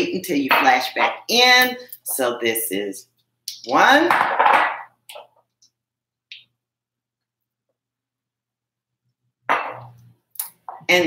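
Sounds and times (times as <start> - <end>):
woman speaking: 0.0 - 4.2.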